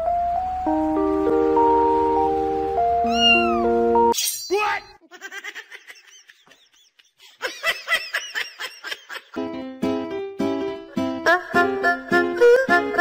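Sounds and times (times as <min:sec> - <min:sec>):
background music: 0:00.0 - 0:04.2, 0:09.4 - 0:13.0
person speaking: 0:04.4 - 0:05.1
rapid laughter: 0:05.1 - 0:09.4.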